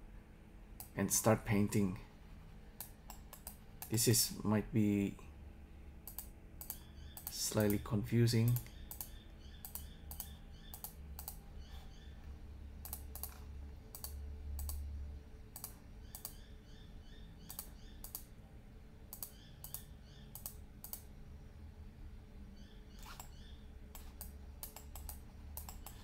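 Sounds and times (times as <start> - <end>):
low steady hum: 0.0 - 26.0
keyboard and mouse clicks: 2.8 - 4.0, 6.0 - 7.8, 8.5 - 11.8, 12.8 - 14.8, 15.5 - 16.4, 17.4 - 18.3, 19.1 - 21.1, 23.0 - 26.0.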